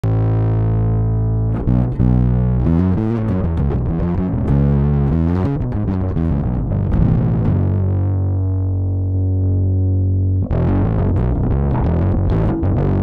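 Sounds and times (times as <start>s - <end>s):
distorted electric bass: 0.0s - 13.0s.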